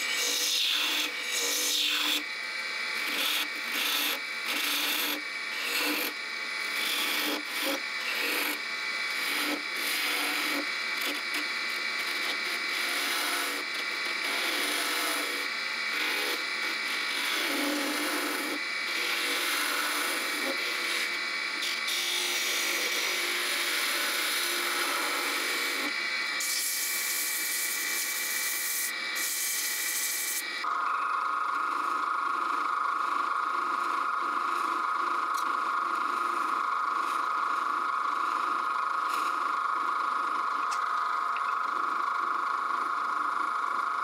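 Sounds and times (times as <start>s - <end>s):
lathe tool scraping wood: 0.0s - 30.5s
lathe whine: 0.0s - 44.0s.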